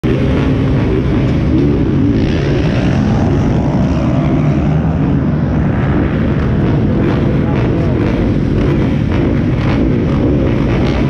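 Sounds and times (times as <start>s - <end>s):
dirt bike engines droning: 0.0s - 11.0s.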